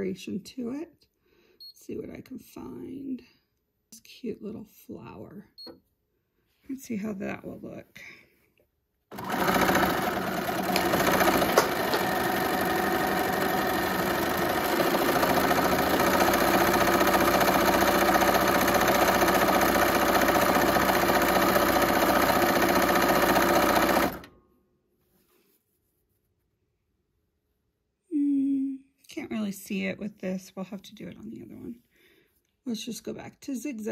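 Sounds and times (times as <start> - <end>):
electric sewing machine running: 9.1 - 24.3.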